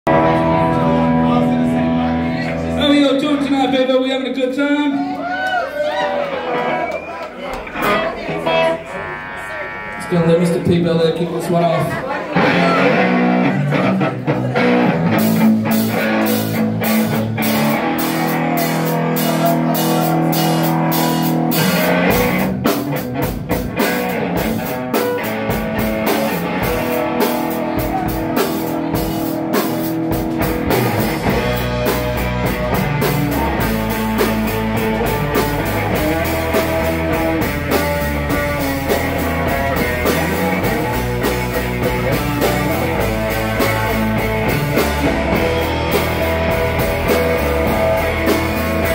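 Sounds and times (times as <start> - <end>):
bass guitar notes: 0.0 - 5.4, 7.5 - 48.9
electric guitars: 0.1 - 3.5, 4.9 - 48.9
drum kit with cymbals: 14.2 - 48.9.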